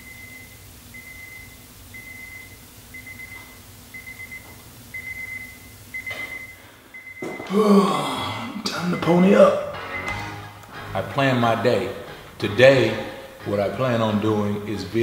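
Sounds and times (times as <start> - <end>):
alarm clock beeping: 8.7 - 15.0.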